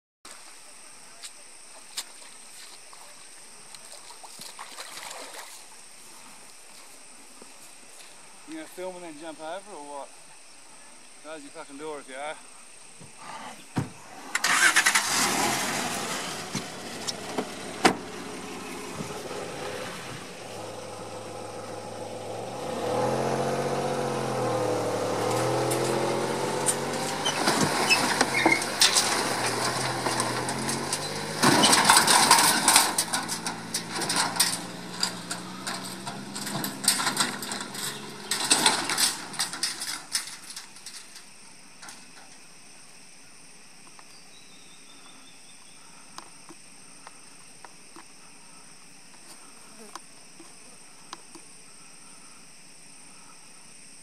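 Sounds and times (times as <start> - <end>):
engine revving: 14.2 - 39.6
vehicle splashing through water: 14.4 - 39.3.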